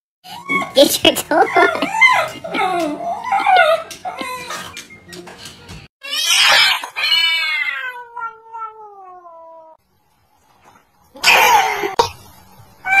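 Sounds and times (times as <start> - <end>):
cats yowling: 6.0 - 9.8.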